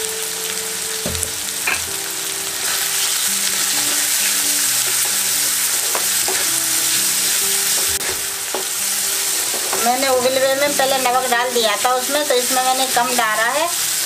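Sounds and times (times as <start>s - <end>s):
food sizzling in hot oil: 0.0s - 14.0s
wooden spatula stirring and scraping: 2.6s - 11.2s.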